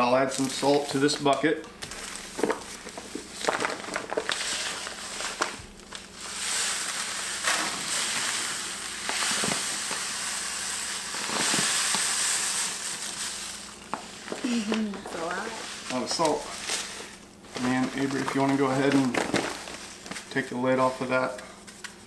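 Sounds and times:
salt pouring into bucket: 1.9 - 14.4.

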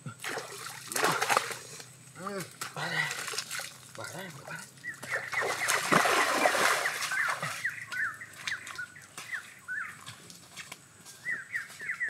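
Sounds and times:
feet splashing in muddy water: 0.2 - 12.0
bird chirping: 4.6 - 10.2, 11.1 - 12.0.

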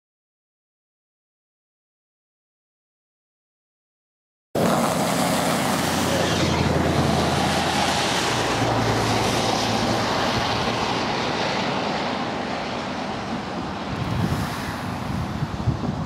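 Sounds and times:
steady rushing outdoor noise: 4.6 - 16.0
wind buffeting microphone: 4.6 - 16.0.

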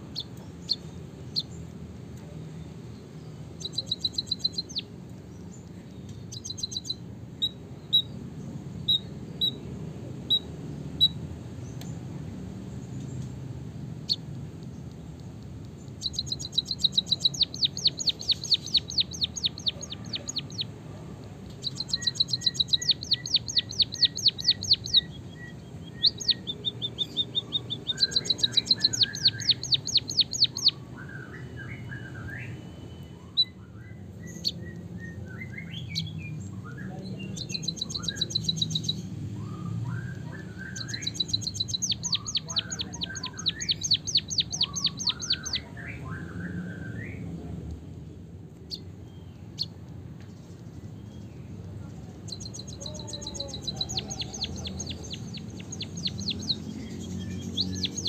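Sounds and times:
soft twittering chirps: 0.0 - 9.7, 10.3 - 47.3, 48.6 - 58.0
bird rolling song: 14.1 - 32.5, 37.3 - 45.7, 48.6 - 58.0.

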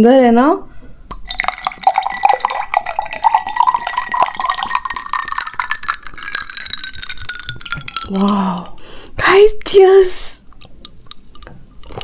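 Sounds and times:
drink glugging into glass: 1.1 - 8.8.

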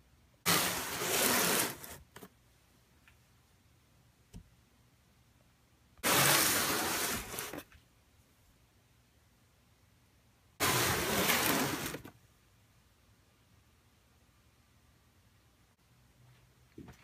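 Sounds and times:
cardboard box scraping on workbench: 0.5 - 2.0, 6.0 - 7.6, 10.6 - 12.1.

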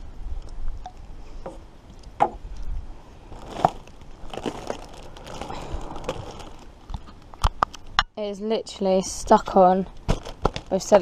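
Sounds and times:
low rumble: 2.4 - 7.6
plastic bottles knocking and crackling: 3.4 - 7.8, 10.0 - 11.0.

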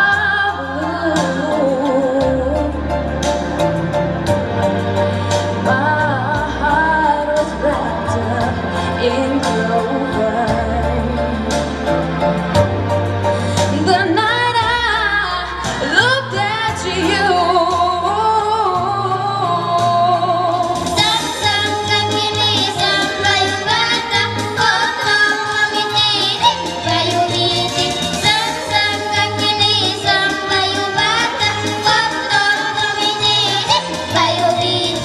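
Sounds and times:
woman singing into a microphone: 0.0 - 2.8, 5.6 - 11.6, 13.7 - 21.8
backing track music: 0.0 - 35.0.

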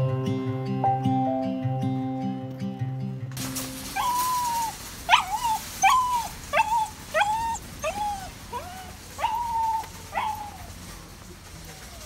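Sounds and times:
dog whining: 3.9 - 10.7.

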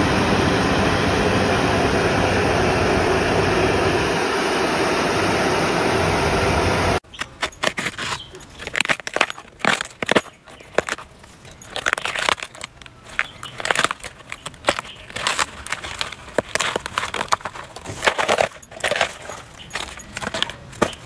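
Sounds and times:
bamboo sheaths being torn: 7.1 - 21.0.

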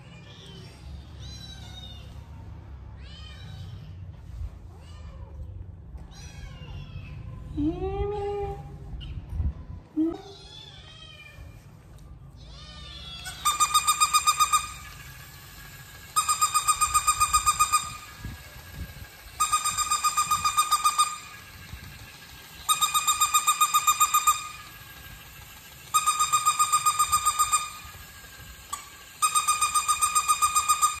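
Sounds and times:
toy puppy electronic beeping bark: 13.2 - 15.0, 26.0 - 27.9, 29.2 - 31.0.

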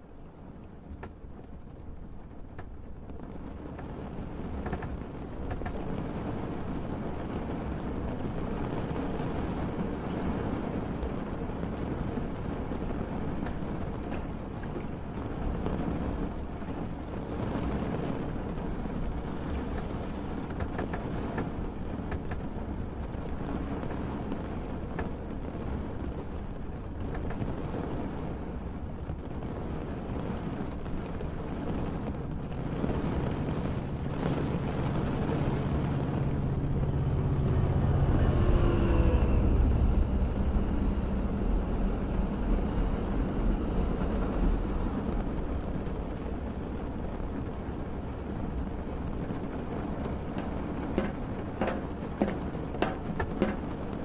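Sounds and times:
steady rain: 0.0 - 54.0
low rumble: 31.2 - 54.0
low vehicle drone: 32.0 - 54.0
faint gliding tones: 33.1 - 45.6.

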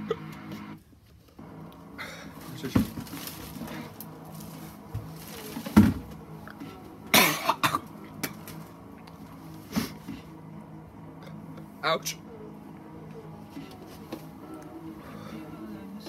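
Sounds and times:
man coughing: 7.1 - 7.9.

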